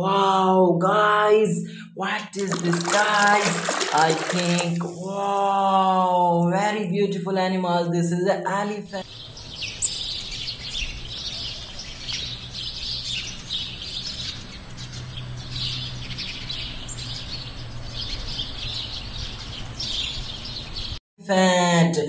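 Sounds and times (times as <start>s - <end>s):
small birds chirping: 9.0s - 21.0s.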